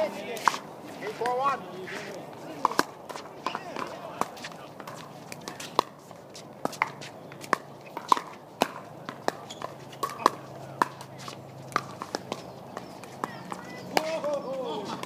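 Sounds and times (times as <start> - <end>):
ball bouncing on hard court: 6.6 - 14.2.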